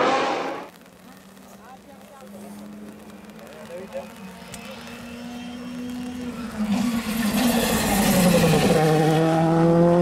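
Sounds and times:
rally car engine approaching: 0:02.3 - 0:10.0.

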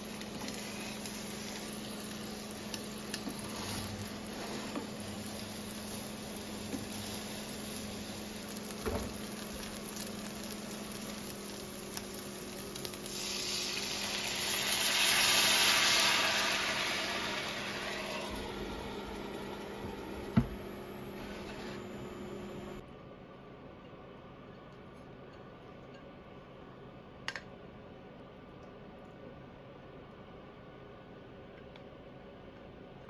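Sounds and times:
meat sizzling in a frying pan: 0:00.0 - 0:20.7
water hissing in hot pan: 0:00.0 - 0:21.2.

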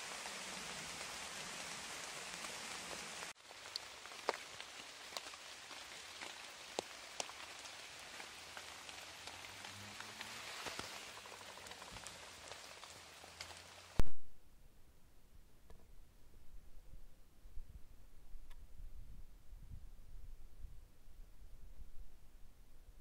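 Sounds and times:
rain hissing: 0:00.0 - 0:14.0
raindrops ticking on surfaces: 0:00.0 - 0:14.0.

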